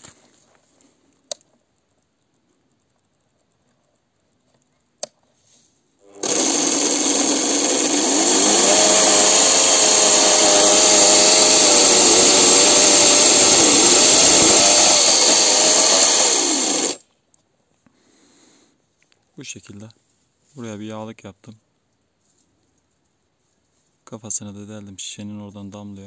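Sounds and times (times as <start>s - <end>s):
motor-driven chainsaw chain whining: 6.0s - 17.0s.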